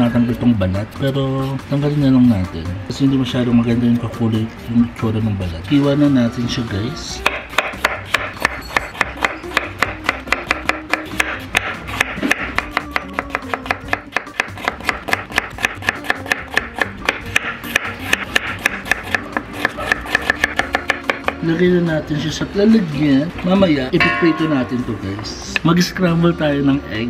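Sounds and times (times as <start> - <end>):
knife chopping on wooden board: 7.2 - 21.4.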